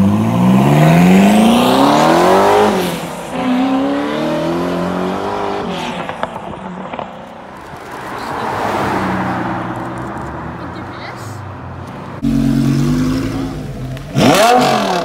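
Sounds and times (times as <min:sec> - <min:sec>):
sports car engine accelerating: 0:12.2 - 0:15.0.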